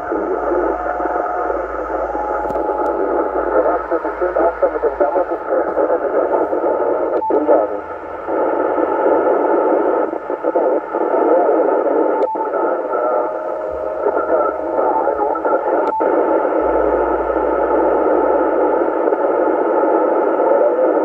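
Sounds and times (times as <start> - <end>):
faint wavering tones: 0.0 - 5.2, 12.4 - 19.0
radio static hiss: 0.0 - 21.0.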